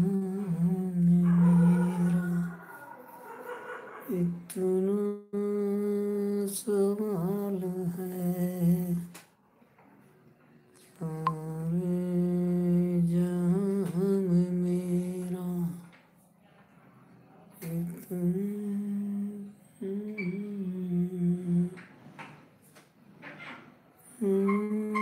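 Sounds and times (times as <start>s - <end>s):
man humming: 0.0s - 2.6s.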